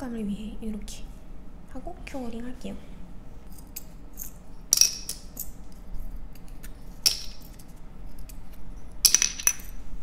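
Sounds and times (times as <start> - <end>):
rhinestones rattling in jars: 9.0 - 9.8.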